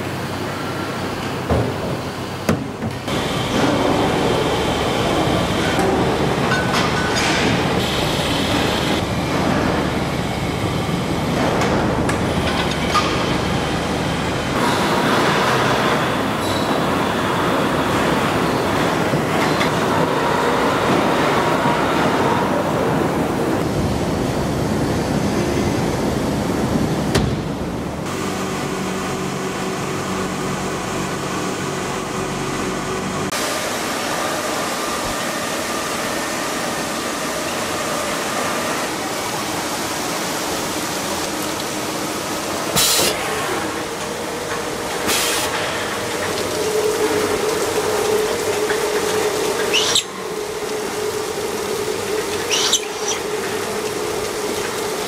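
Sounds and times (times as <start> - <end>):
factory machinery noise: 0.0 - 55.0.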